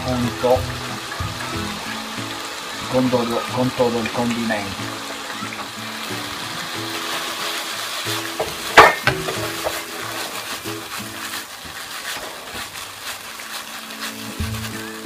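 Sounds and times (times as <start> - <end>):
food sizzling in frying pan: 0.0 - 15.0
sharp clack: 8.4 - 9.9.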